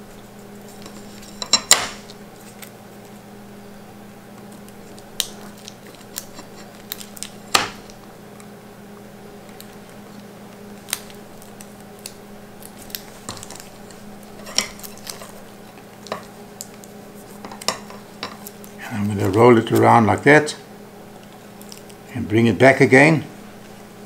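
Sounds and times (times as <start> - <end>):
steady low hum: 0.0 - 24.0
hands handling tape and cable: 9.4 - 19.9.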